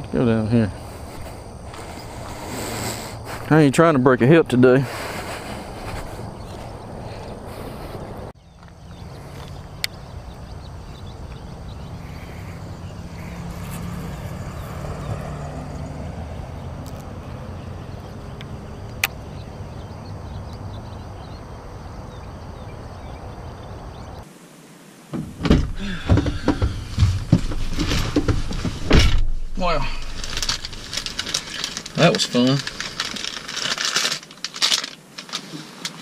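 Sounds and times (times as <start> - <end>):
knocks and thuds inside vehicle cabin: 25.1 - 29.6.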